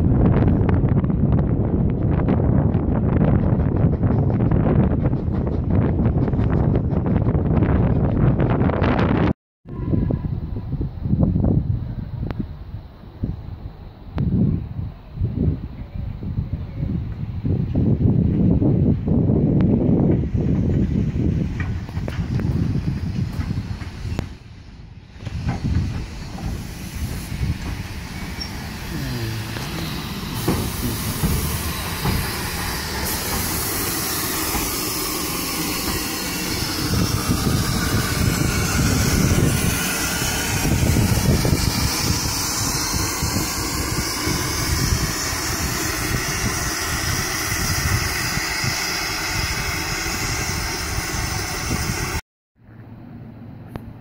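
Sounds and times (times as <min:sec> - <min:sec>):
steam locomotive hissing: 0:02.1 - 0:08.3, 0:19.4 - 0:52.2.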